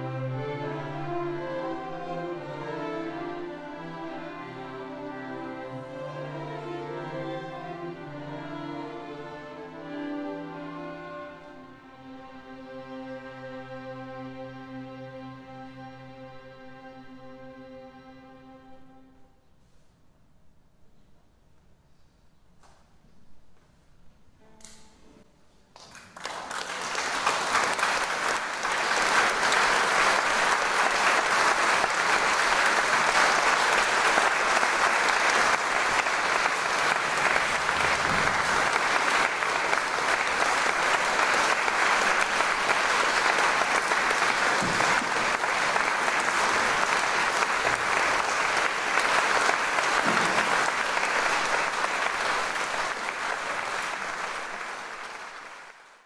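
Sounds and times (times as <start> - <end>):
audience applauding: 25.8 - 56.0.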